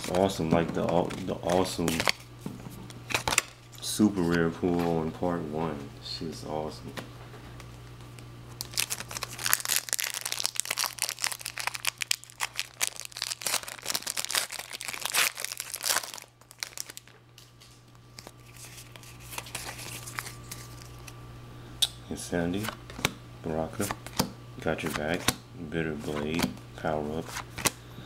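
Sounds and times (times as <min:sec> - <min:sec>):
steady low hum: 0:00.0 - 0:28.0
foil pack crinkling and tearing: 0:01.0 - 0:02.2, 0:08.5 - 0:17.2, 0:18.1 - 0:21.1.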